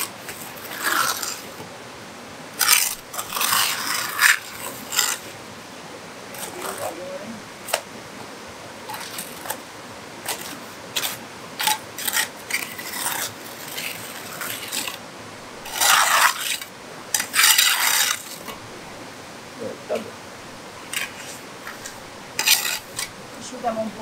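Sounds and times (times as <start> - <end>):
trowel scraping mortar: 0.0 - 1.6, 2.6 - 5.3, 10.3 - 15.0, 15.6 - 18.5, 20.9 - 23.1.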